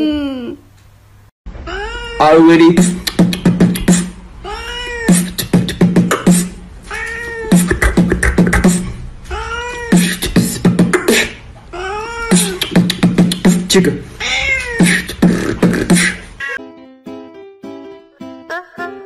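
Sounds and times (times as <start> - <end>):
cat meowing: 1.7 - 2.6, 4.4 - 5.2, 6.9 - 7.6, 9.3 - 10.0, 14.2 - 14.9
person beatboxing: 2.6 - 4.2, 5.1 - 6.6, 7.5 - 9.0, 9.9 - 11.4, 12.3 - 14.0, 14.8 - 16.6.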